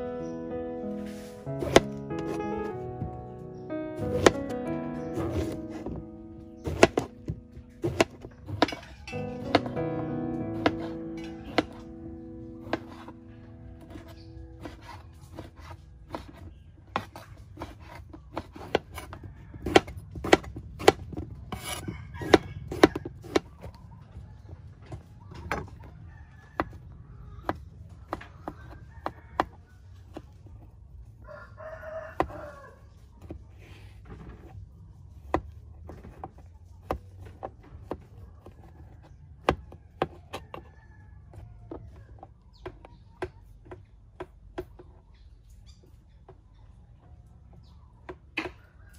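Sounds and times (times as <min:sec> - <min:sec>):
spoon and knife scraping: 0:07.8 - 0:09.8, 0:13.8 - 0:23.5
rooster crowing: 0:21.7 - 0:23.2, 0:25.9 - 0:27.5, 0:28.4 - 0:29.8, 0:31.2 - 0:32.9, 0:40.2 - 0:42.1.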